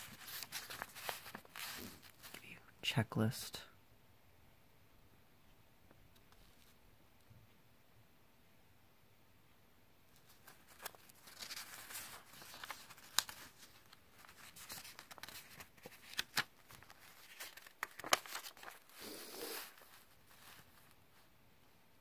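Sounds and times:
paper pages rustling and crinkling: 0.0s - 2.5s, 10.1s - 21.3s.

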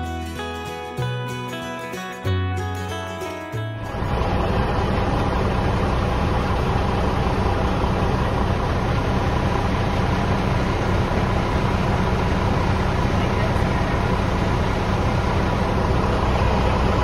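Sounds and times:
guitar music: 0.0s - 7.8s
diesel engine idling: 2.7s - 17.0s.

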